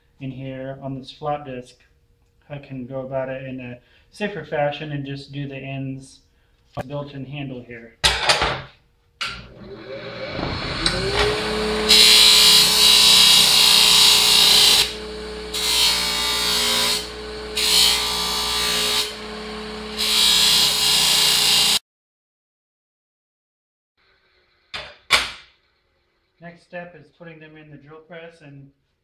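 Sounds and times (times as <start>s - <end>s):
bench grinder motor whine: 9.3s - 21.8s
steel grinding on wheel: 9.4s - 21.8s.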